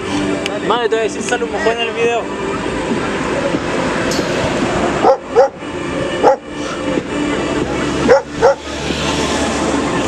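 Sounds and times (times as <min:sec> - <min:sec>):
background music: 0:00.0 - 0:10.0
dog barking: 0:05.0 - 0:05.6, 0:06.2 - 0:06.4, 0:08.1 - 0:08.6.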